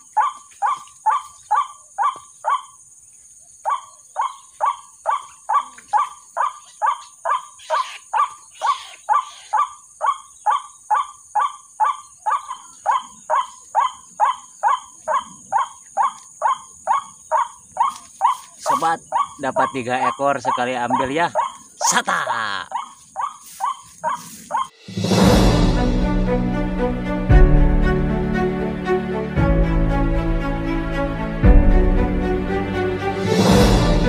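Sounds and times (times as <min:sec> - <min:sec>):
waterhen short kwak calls: 0:03.7 - 0:21.9
vegetation rustling: 0:17.8 - 0:19.8, 0:20.5 - 0:24.8.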